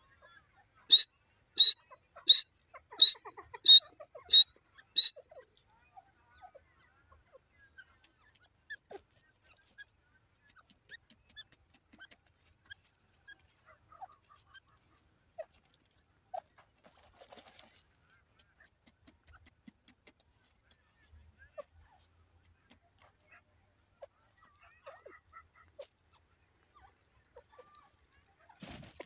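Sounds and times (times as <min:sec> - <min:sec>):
faint chirps and ticks: 0:00.0 - 0:28.6
bird giving sharp call notes: 0:00.9 - 0:05.1
soft rustle: 0:12.2 - 0:18.2, 0:27.4 - 0:29.0.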